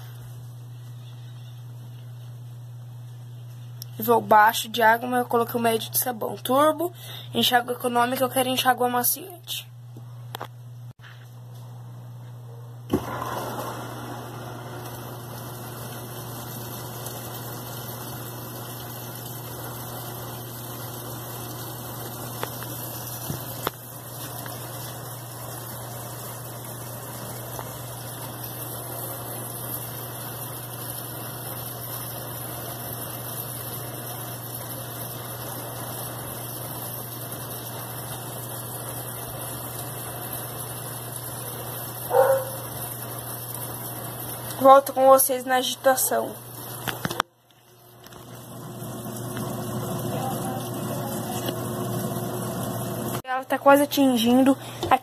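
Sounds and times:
water pouring into washing machine: 13.0s - 47.1s, 48.0s - 53.2s.

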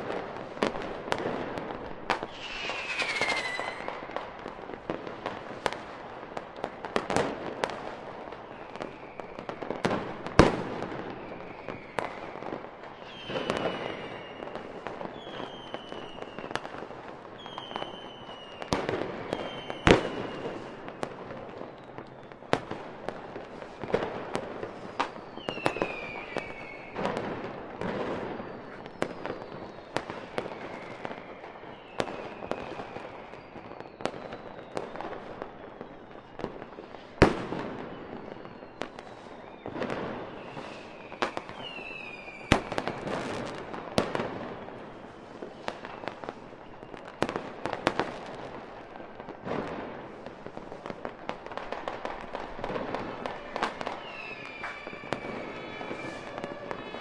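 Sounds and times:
falling firework whistles: 0.0s - 5.8s, 8.4s - 48.6s, 49.3s - 57.0s
fireworks bangs and crackling: 0.0s - 57.0s
sharp firework reports: 2.1s - 4.4s.

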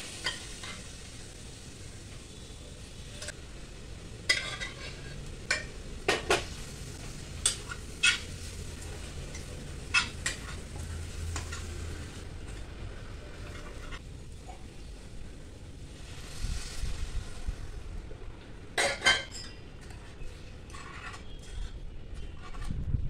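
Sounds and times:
steady sizzle: 0.0s - 21.8s
metal spoon scraping a pan: 0.1s - 1.1s, 4.3s - 6.6s, 7.4s - 11.8s, 13.3s - 14.1s, 18.8s - 22.8s.

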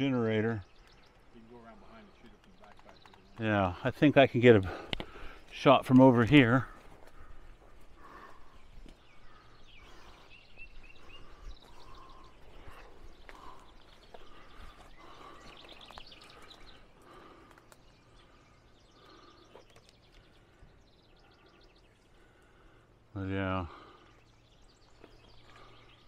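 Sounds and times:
birds chirping and trilling: 0.0s - 26.0s
light clicks and rustles: 2.2s - 3.6s.

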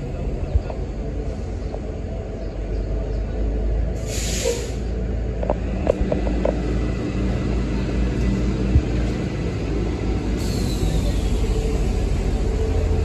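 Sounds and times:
buses idling: 0.0s - 13.0s
air brake hiss: 4.0s - 4.9s, 10.4s - 11.4s.

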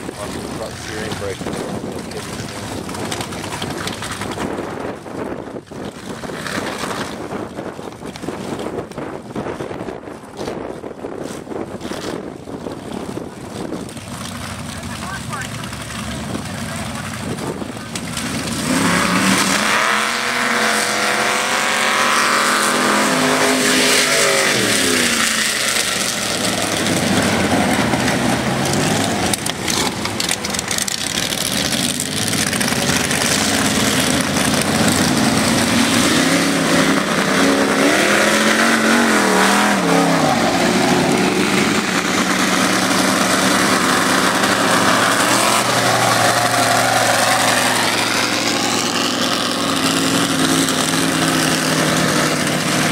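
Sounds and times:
truck engines revving: 0.0s - 52.9s.

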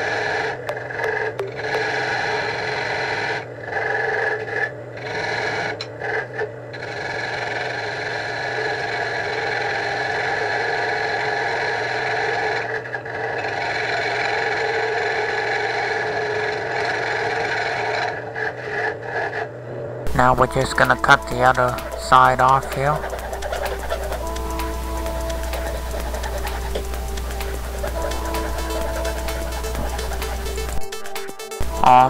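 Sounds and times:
lathe humming: 20.1s - 31.8s
tool scraping spinning wood: 20.7s - 30.8s.

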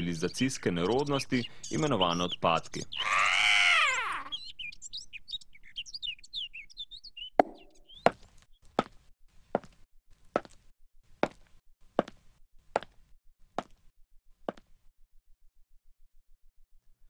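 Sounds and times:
birds chirping: 0.0s - 9.0s.

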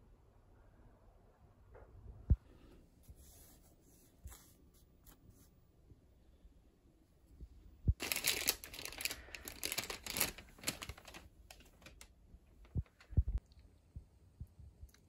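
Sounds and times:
crinkling handling noise: 8.0s - 13.4s.

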